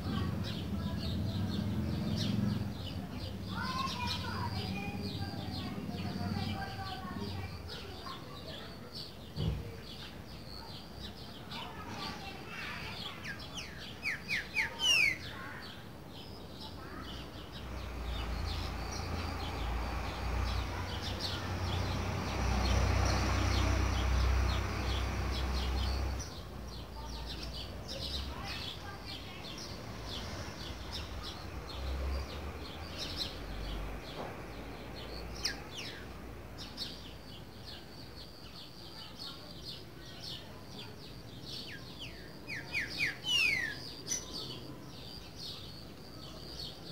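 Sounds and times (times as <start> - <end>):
faint high chirps and ticks: 22.7 - 46.9.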